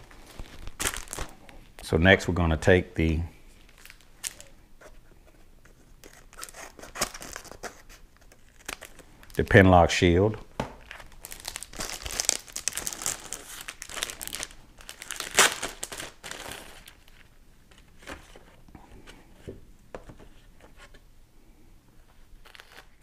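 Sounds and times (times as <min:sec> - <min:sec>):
cardboard packaging crinkling: 0:00.0 - 0:01.6, 0:03.6 - 0:04.6, 0:06.0 - 0:09.6, 0:10.8 - 0:18.4, 0:22.4 - 0:23.0.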